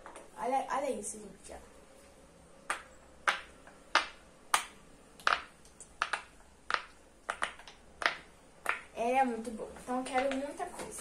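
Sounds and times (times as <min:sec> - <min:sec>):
pop-it toy bubbles popping: 0:02.7 - 0:08.9.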